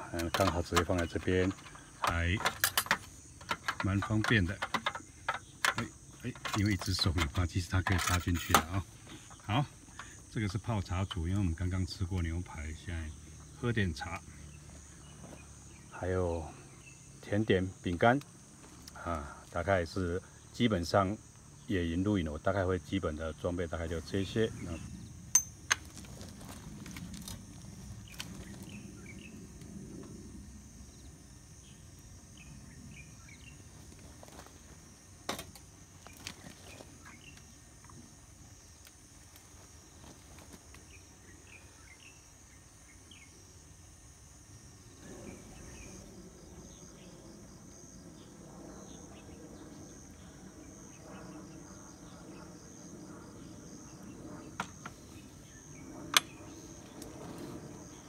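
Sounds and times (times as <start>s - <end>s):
faint low hum: 0.0s - 58.0s
insects chirring: 0.0s - 58.0s
short insect chirps: 24.0s - 58.0s.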